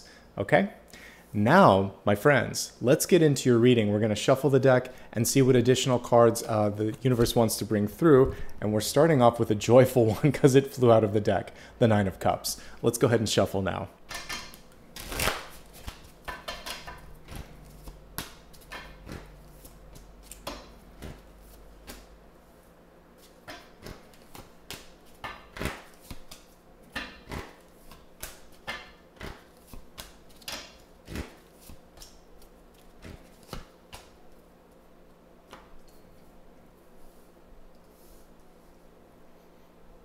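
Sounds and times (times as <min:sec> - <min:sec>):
cards being shuffled: 0:15.0 - 0:22.1, 0:23.2 - 0:26.6, 0:27.3 - 0:34.1.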